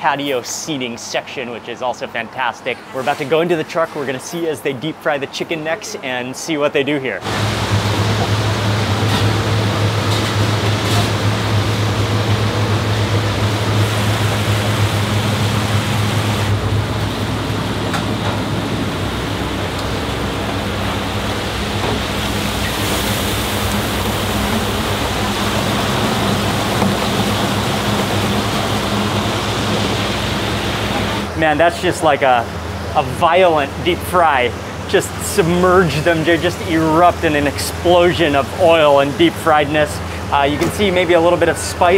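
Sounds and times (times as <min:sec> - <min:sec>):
hot oil bubbling and sizzling: 0:07.2 - 0:31.4
steady low hum: 0:07.2 - 0:41.9.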